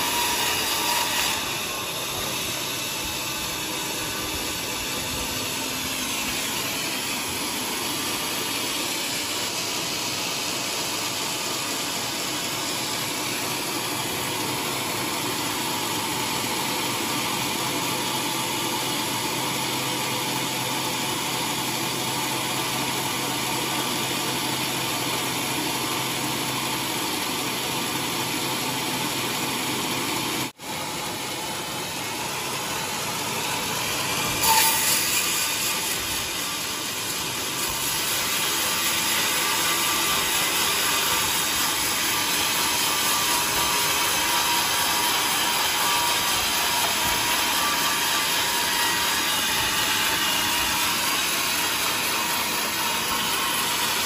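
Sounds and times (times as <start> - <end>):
band saw cutting log: 0.0 - 54.0.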